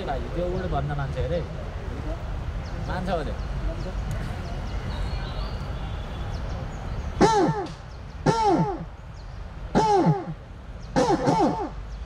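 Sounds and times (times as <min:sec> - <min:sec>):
man imitating crow caws: 0:07.2 - 0:08.9, 0:09.7 - 0:10.4, 0:11.0 - 0:11.8.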